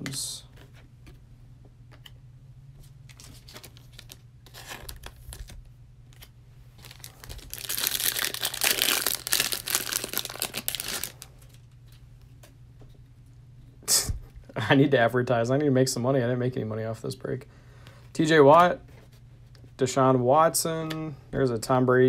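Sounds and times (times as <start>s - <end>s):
foil wrapper crinkling and tearing: 3.2s - 5.6s, 6.8s - 11.6s
foil pack rustling and clicking: 6.8s - 11.6s.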